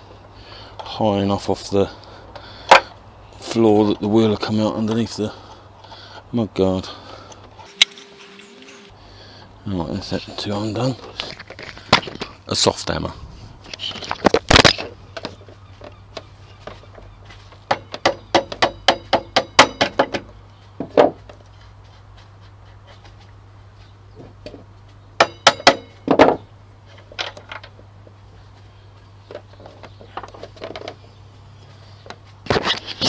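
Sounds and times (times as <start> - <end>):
hammer knocking on metal axle: 17.7 - 20.3, 25.2 - 26.4.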